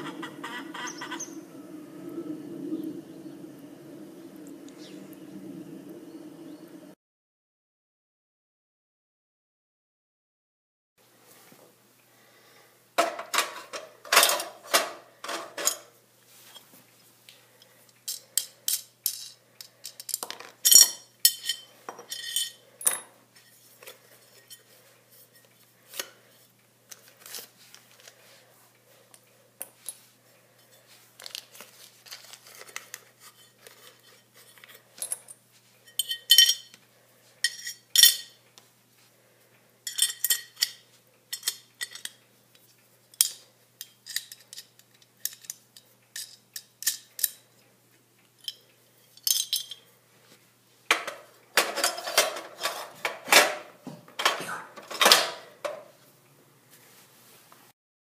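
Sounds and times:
metal parts clinking on tile floor: 0:13.0 - 0:15.9, 0:17.6 - 0:24.7, 0:30.6 - 0:36.8, 0:37.4 - 0:38.4, 0:39.8 - 0:47.5, 0:48.4 - 0:49.9, 0:50.9 - 0:53.6.

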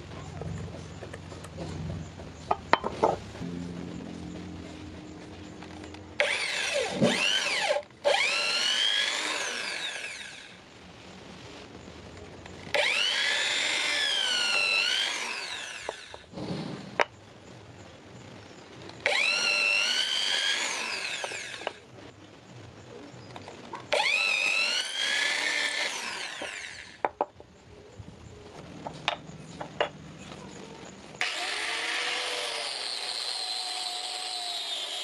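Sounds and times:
electric drill boring wood: 0:06.2 - 0:10.6, 0:12.7 - 0:16.3, 0:19.0 - 0:21.8, 0:23.9 - 0:27.1, 0:31.2 - 0:35.0.

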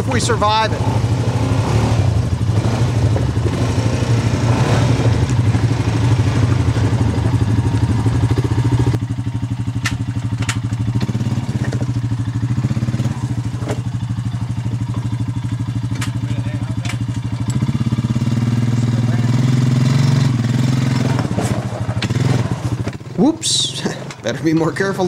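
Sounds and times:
atv engines idling: 0:00.0 - 0:25.0
sharp clicks: 0:16.8 - 0:17.6.

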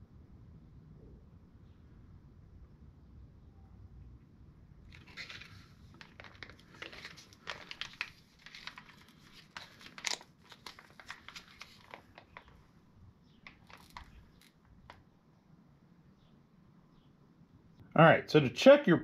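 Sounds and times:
plastic bottle crinkling: 0:04.9 - 0:12.7, 0:13.3 - 0:15.0.

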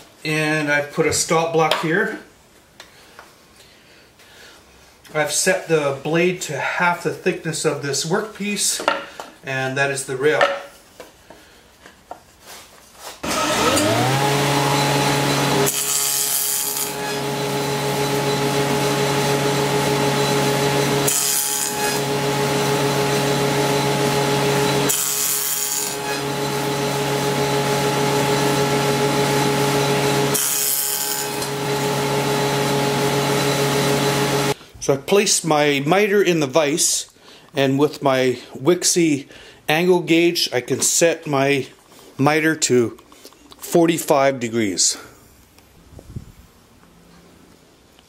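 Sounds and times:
saw cutting wood hissing: 0:13.2 - 0:34.6
table saw motor whine: 0:13.2 - 0:34.6.

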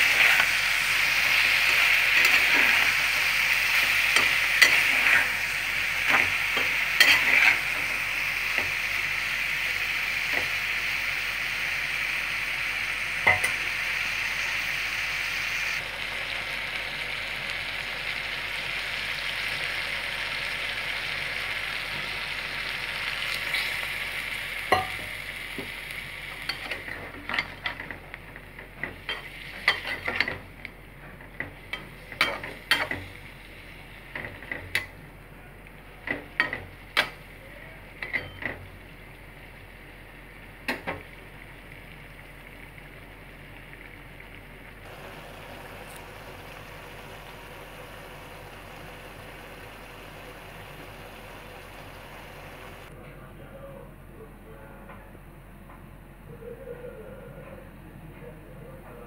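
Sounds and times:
vegetables sizzling in frying pan: 0:00.0 - 0:52.9
spatula scraping and tapping pan: 0:01.6 - 0:02.9, 0:03.8 - 0:05.4, 0:06.0 - 0:08.0, 0:24.7 - 0:25.7, 0:28.6 - 0:30.5, 0:31.2 - 0:33.2.

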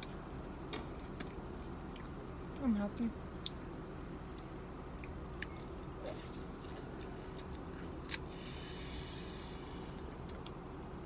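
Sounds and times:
low steady hum: 0:00.0 - 0:11.0
crunchy chewing: 0:03.4 - 0:08.6.

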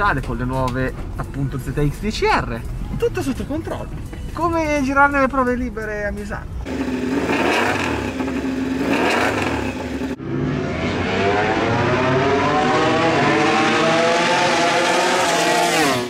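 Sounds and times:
pit lane engine noise: 0:06.5 - 0:16.0
motorcycle engine accelerating: 0:06.7 - 0:16.0.

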